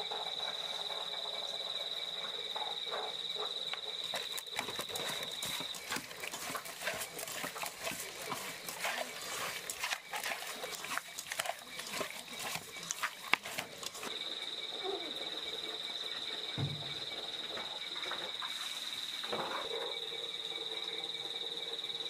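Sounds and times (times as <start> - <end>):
hands rubbing fish with salt: 4.1 - 14.1.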